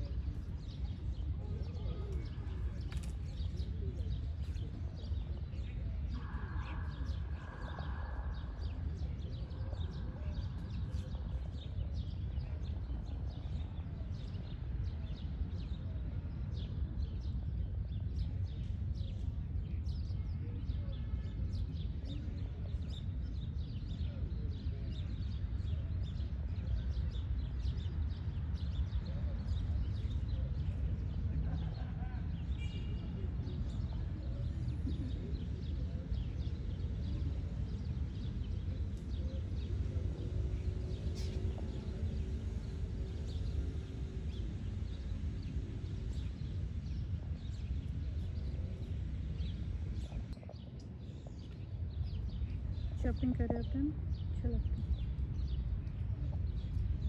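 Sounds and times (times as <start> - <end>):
low rumble of city traffic: 0.0 - 57.0
birds chirping: 27.0 - 57.0.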